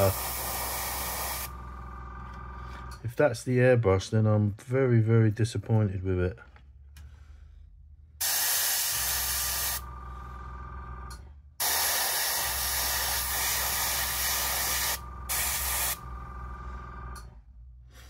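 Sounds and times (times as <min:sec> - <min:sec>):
steady low hum: 0:00.0 - 0:05.6, 0:06.4 - 0:18.0
airbrush spraying hiss: 0:08.2 - 0:09.8, 0:11.6 - 0:16.0.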